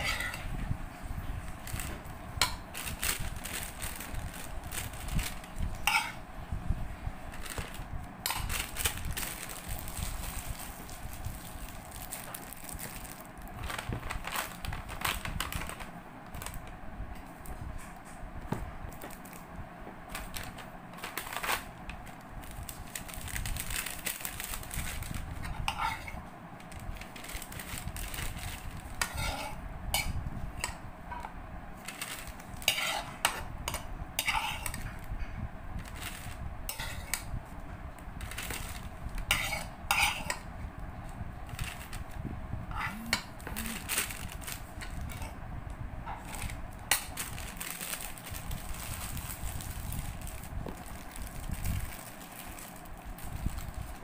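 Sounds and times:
utensils clinking against dishes: 0.0 - 0.5, 5.8 - 6.2, 29.0 - 31.2, 31.9 - 34.8, 39.3 - 40.5.

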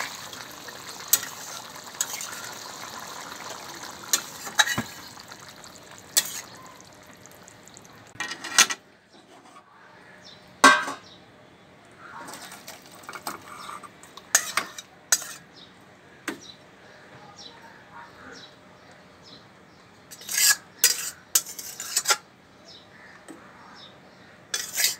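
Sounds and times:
metal spatula scraping a pot: 0.0 - 3.2, 4.0 - 6.8, 12.3 - 15.5, 20.1 - 22.3, 24.5 - 24.9.

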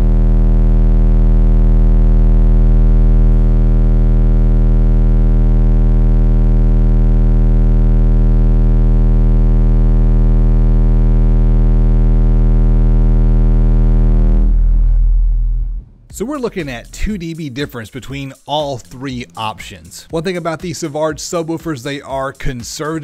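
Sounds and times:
loud buzzy bass tone from subwoofers: 0.0 - 17.0.

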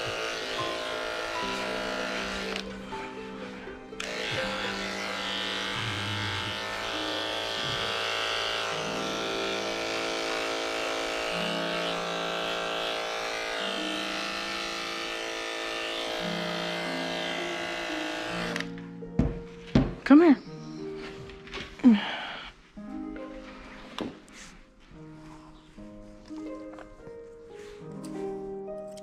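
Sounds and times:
electric clippers buzzing: 0.0 - 18.9.

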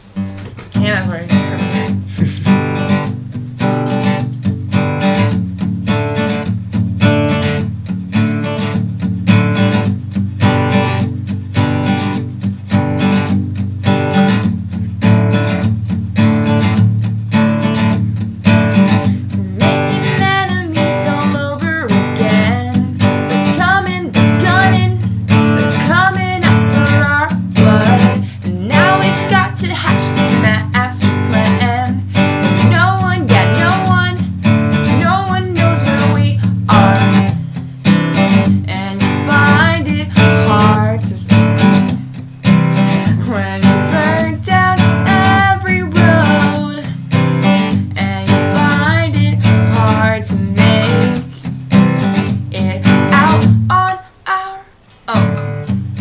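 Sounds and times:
acoustic guitar strumming: 0.0 - 56.0
woman singing: 0.7 - 3.0, 18.9 - 37.5, 38.2 - 42.0, 42.9 - 55.7.

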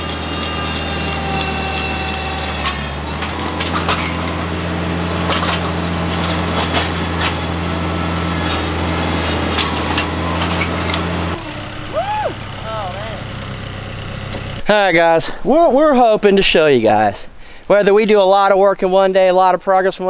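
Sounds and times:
tractor engine under load: 0.0 - 14.7.

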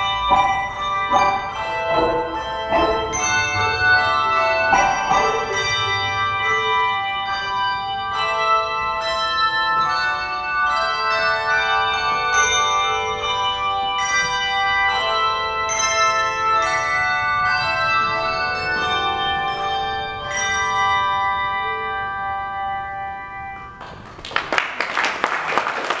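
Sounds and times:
handbell chords ringing: 0.0 - 23.2
audience applause: 23.8 - 26.0.

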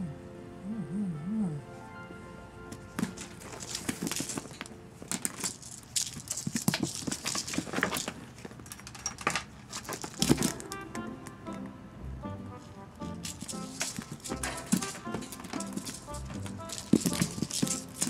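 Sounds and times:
background music: 0.0 - 5.0, 10.2 - 18.0
toy streamer rustling: 2.7 - 11.1, 12.9 - 18.0.

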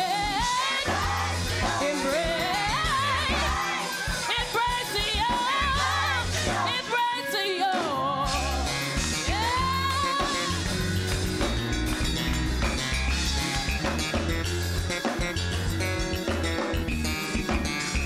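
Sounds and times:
bass-heavy band: 0.0 - 7.1, 7.7 - 18.0
lead singer vocal runs: 0.0 - 10.6.

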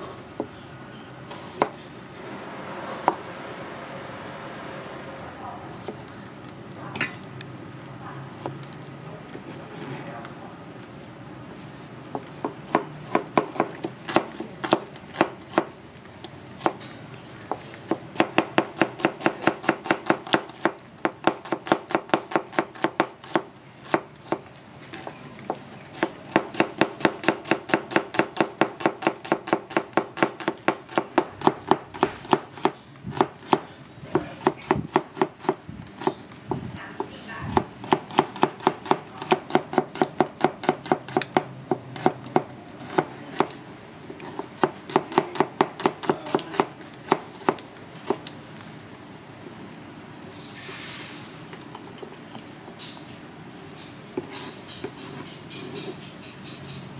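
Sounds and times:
knife chopping on cutting board: 44.3 - 48.2.

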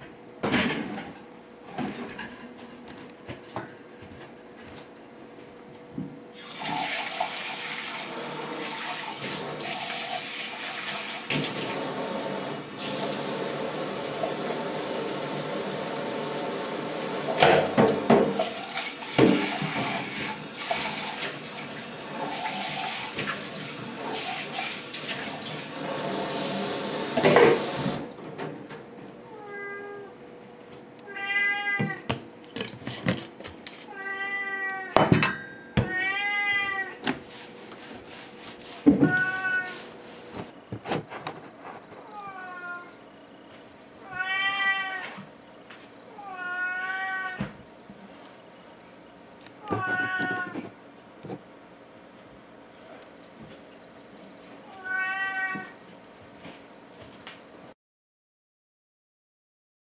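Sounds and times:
tap running into sink: 17.3 - 23.5, 27.0 - 28.0
cat meowing: 29.3 - 30.1, 31.0 - 32.1, 33.9 - 35.0, 35.9 - 37.0, 39.0 - 39.8, 42.0 - 43.0, 44.0 - 45.2, 46.1 - 47.5, 49.6 - 50.6, 54.7 - 55.8.

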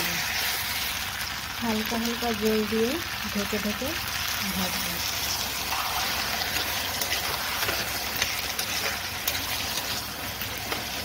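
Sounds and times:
food sizzling in oil: 0.0 - 11.0
metal spatula stirring: 5.1 - 11.0.

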